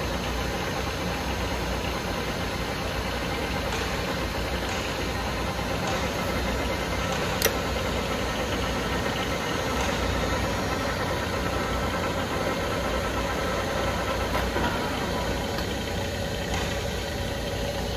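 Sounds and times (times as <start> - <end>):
lathe mechanical hum: 0.0 - 17.9
sharp click: 7.0 - 7.6.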